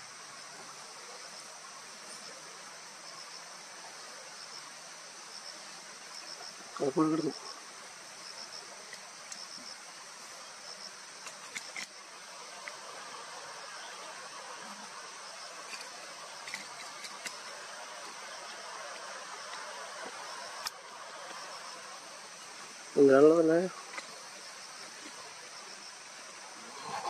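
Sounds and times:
insects chirring: 0:00.0 - 0:27.0
faint clicks: 0:19.5 - 0:21.4.

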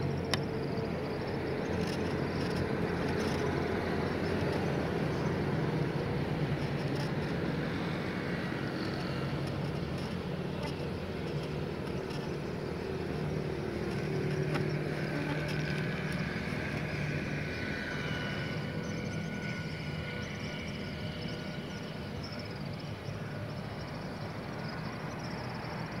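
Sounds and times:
road traffic passing: 0:00.0 - 0:26.0.

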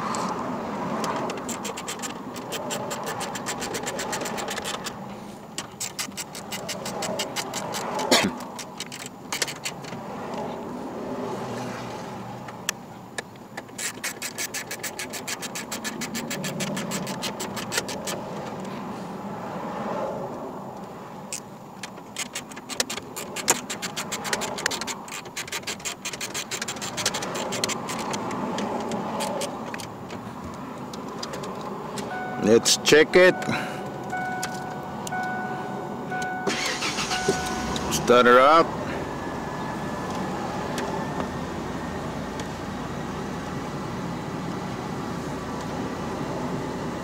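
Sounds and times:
screwdriver scraping: 0:01.0 - 0:05.0, 0:05.6 - 0:09.9, 0:13.7 - 0:18.2, 0:22.1 - 0:29.9.

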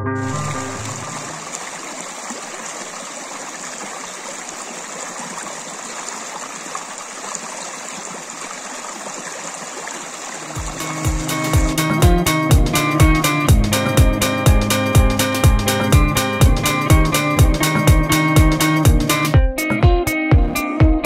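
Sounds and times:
stream rushing over stones: 0:00.2 - 0:11.9.

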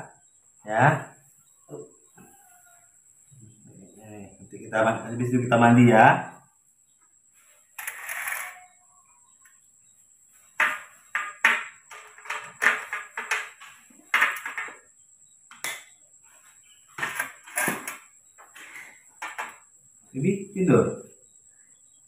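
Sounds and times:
spoon and plastic cups on metal tray: 0:07.8 - 0:08.8, 0:10.6 - 0:14.8.

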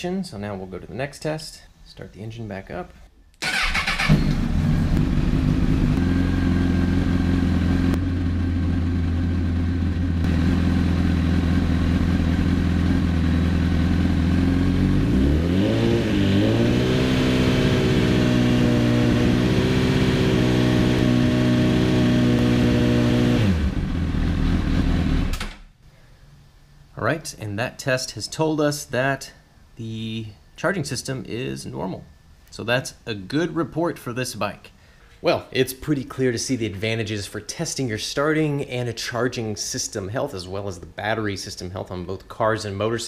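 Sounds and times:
motorcycle engine revving: 0:03.4 - 0:25.4
motorcycle engine starting: 0:03.4 - 0:25.6.

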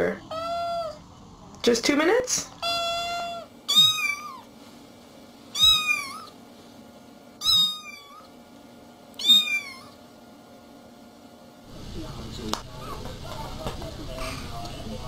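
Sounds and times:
cat meowing: 0:00.2 - 0:01.0, 0:02.6 - 0:04.5, 0:05.5 - 0:06.4, 0:07.4 - 0:08.3, 0:09.2 - 0:10.0.

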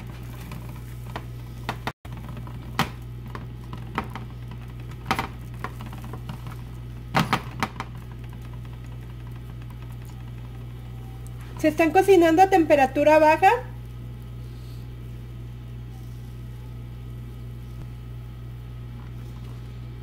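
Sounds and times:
food tapping and scraping in a pan: 0:00.0 - 0:10.5
steady low hum: 0:00.0 - 0:20.0.

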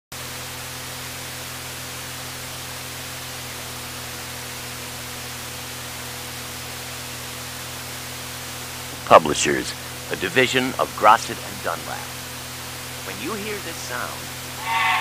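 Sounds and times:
low electrical hum: 0:00.2 - 0:15.0.

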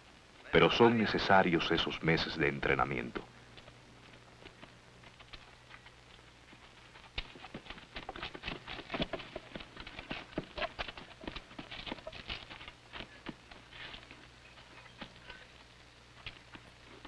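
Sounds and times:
faint low hum: 0:00.0 - 0:17.0
booted footsteps shuffling: 0:02.5 - 0:17.0.

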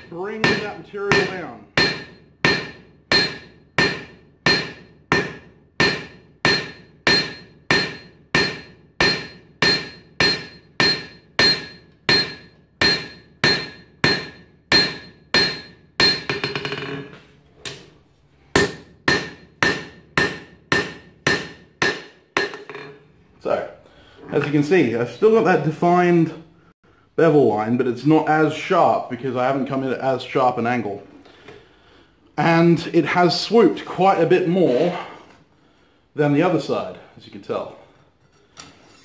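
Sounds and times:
hammer striking steel on anvil: 0:00.0 - 0:16.9, 0:18.5 - 0:23.0.

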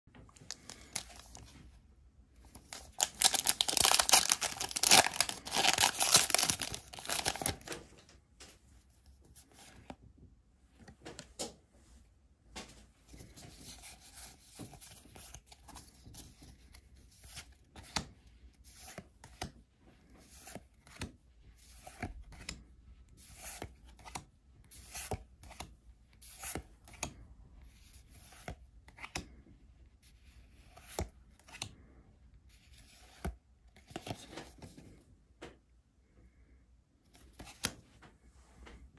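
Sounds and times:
foil wrapper tearing: 0:02.9 - 0:07.6.

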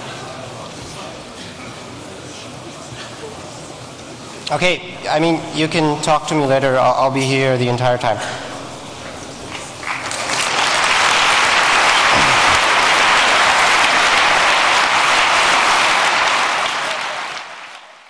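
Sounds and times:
audience applauding: 0:08.8 - 0:18.0.

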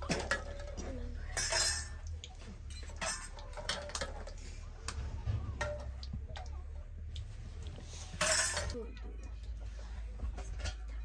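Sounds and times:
metal spoon stirring in pot: 0:00.0 - 0:04.8.

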